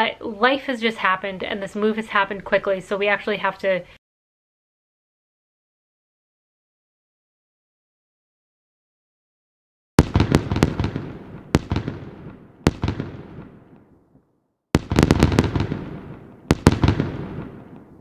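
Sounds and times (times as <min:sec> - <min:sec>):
fireworks bangs: 0:10.0 - 0:13.9, 0:14.8 - 0:18.0.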